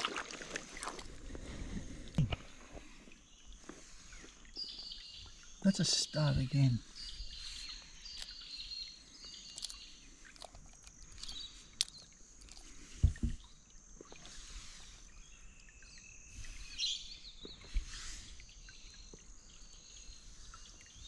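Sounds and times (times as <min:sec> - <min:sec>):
birds chirping: 0:01.8 - 0:12.8, 0:14.4 - 0:21.0
small clicks: 0:09.5 - 0:12.7
low thump: 0:13.0 - 0:13.4.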